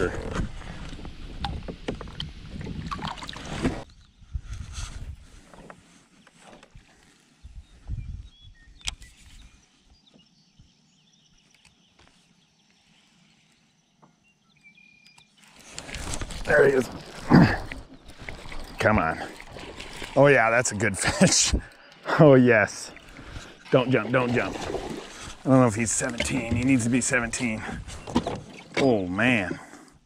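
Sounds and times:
water splashing and swirling: 0:01.4 - 0:03.9, 0:15.5 - 0:29.5.

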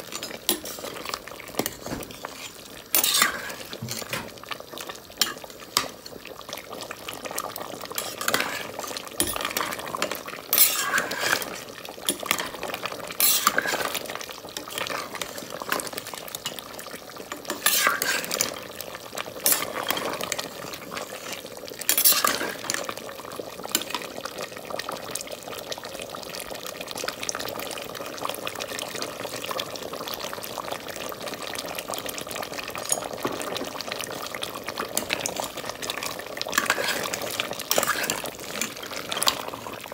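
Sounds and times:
gravy sizzling: 0:00.0 - 0:39.9
metal spoon scraping a pot: 0:00.1 - 0:04.2, 0:07.9 - 0:14.0, 0:17.4 - 0:18.6, 0:19.4 - 0:22.9, 0:36.4 - 0:39.8.

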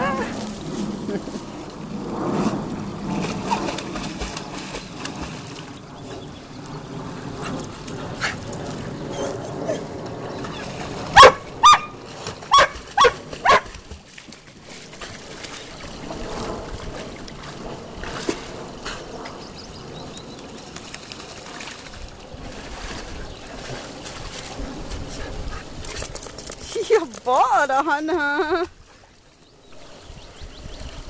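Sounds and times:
dogs splashing in stream: 0:00.0 - 0:30.2
dog barking: 0:11.2 - 0:13.7.

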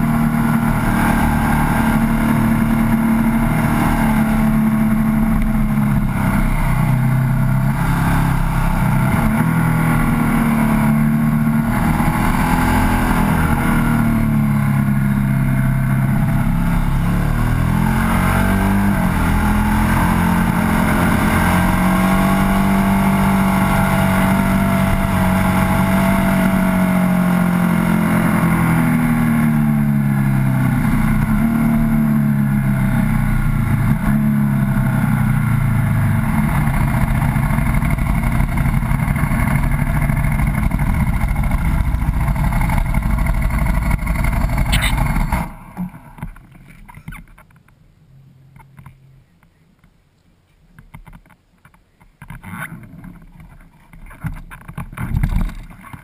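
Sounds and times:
motorcycle engine running: 0:00.0 - 0:45.6.

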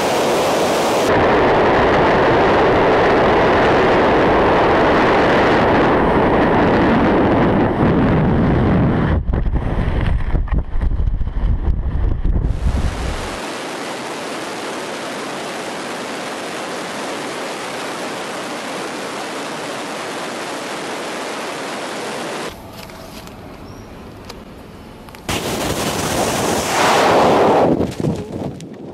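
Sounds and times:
wind rushing over microphone: 0:00.0 - 0:22.5, 0:25.3 - 0:28.9.

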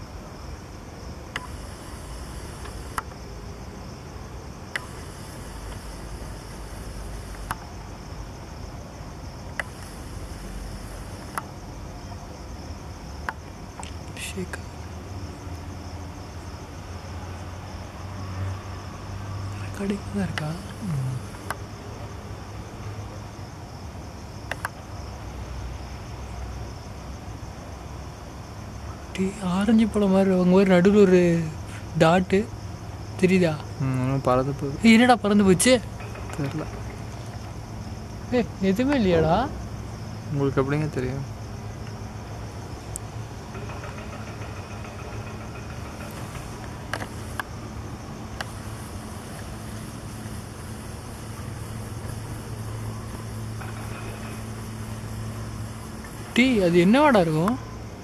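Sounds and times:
crickets chirping: 0:00.0 - 0:58.0
sharp click: 0:24.5 - 0:24.8.

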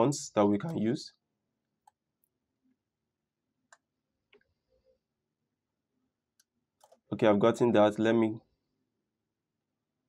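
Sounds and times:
computer mouse clicks: 0:03.7 - 0:04.6, 0:06.4 - 0:07.1.

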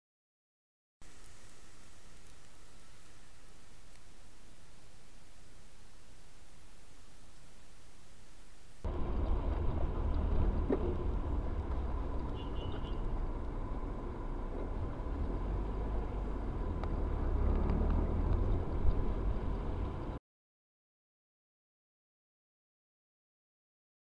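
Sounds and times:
faint constant whine: 0:01.0 - 0:16.9
engine and tyre rumble: 0:08.8 - 0:20.2.

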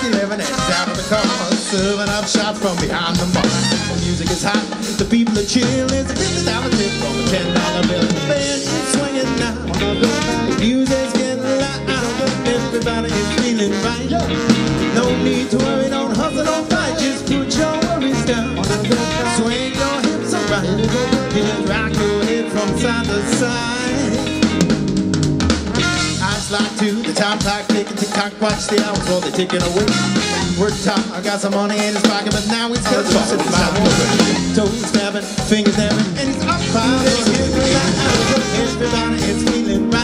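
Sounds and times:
lead singer's voice: 0:00.0 - 0:24.8, 0:25.9 - 0:40.0
brass funk band playing: 0:00.0 - 0:40.0.

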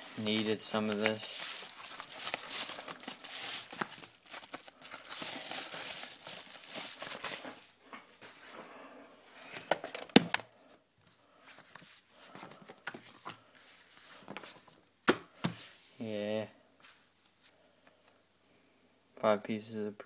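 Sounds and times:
packaging mailer crinkling: 0:00.0 - 0:07.6.

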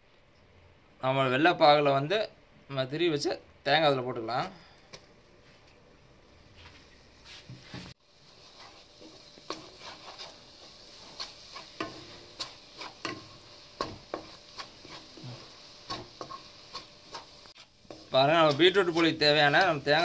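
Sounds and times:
faint sizzle: 0:00.0 - 0:20.0
wooden spatula scraping a pan: 0:07.2 - 0:20.0.

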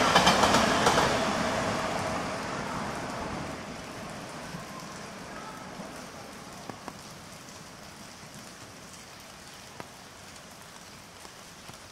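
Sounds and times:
heavy rain falling: 0:00.0 - 0:11.9
single raindrops ticking: 0:05.9 - 0:11.9.

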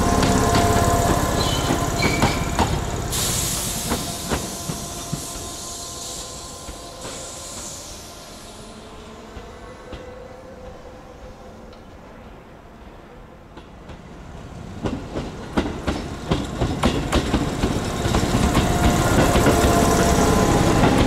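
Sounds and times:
train wheels clacking on rails: 0:00.0 - 0:08.3, 0:13.5 - 0:21.0
sudden hiss: 0:02.4 - 0:09.9.

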